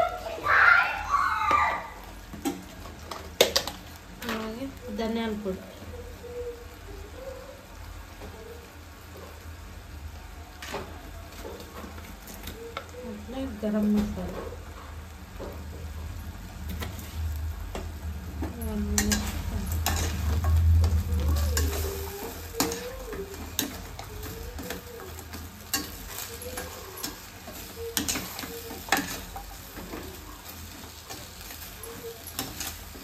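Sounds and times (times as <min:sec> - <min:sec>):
frying sizzle: 0:00.0 - 0:33.0.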